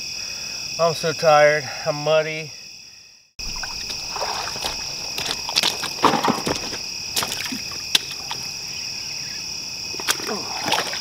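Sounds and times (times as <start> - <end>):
night insects chorus: 0.0 - 11.0
sharp knocks: 3.4 - 7.4
boots squelching through muddy water: 3.4 - 8.6, 9.9 - 11.0.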